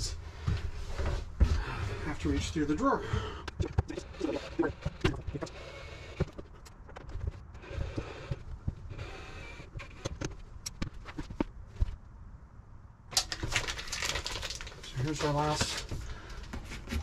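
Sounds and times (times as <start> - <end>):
rustling and scraping: 0.3 - 2.8, 3.5 - 12.1, 13.2 - 17.0.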